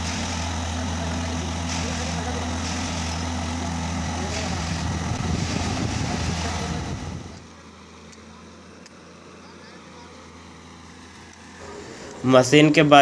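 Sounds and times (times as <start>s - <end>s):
tamping machine rushing noise: 0.0s - 8.0s
diesel engine droning: 0.0s - 13.0s.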